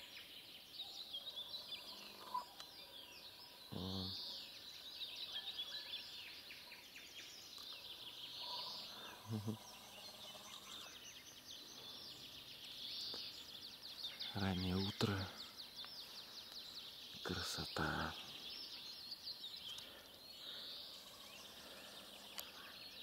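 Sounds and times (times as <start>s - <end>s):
songbirds trilling and chirping: 0.0s - 23.0s.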